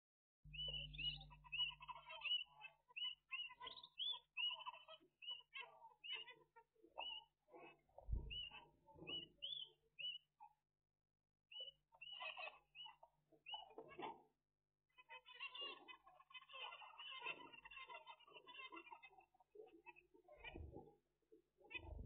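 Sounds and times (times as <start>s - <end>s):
finches chirping: 0.5s - 10.4s, 11.5s - 14.1s
soft bird chatter: 0.5s - 10.7s, 11.5s - 22.0s.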